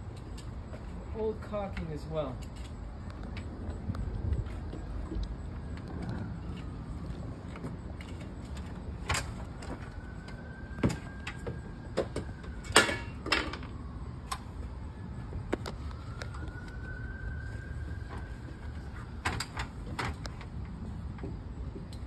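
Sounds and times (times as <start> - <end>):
steady low rumble: 2.5 - 10.7.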